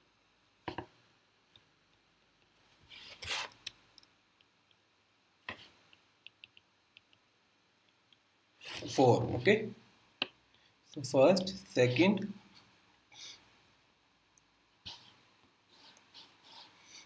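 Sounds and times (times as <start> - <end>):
stylus writing on tablet screen: 4.4 - 10.4, 14.9 - 17.0.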